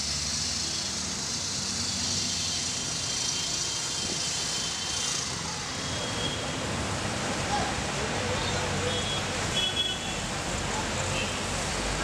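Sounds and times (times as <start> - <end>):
city street traffic: 0.0 - 12.0.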